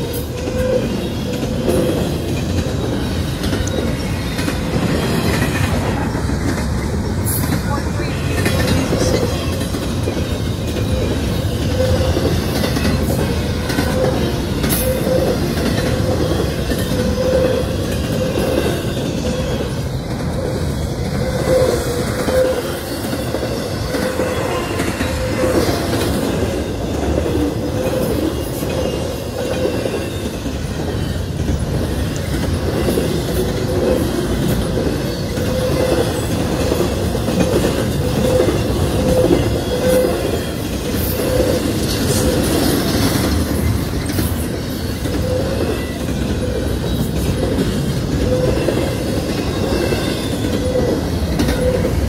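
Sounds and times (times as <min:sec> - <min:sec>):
freight train wheels rumbling: 0:00.0 - 0:52.0.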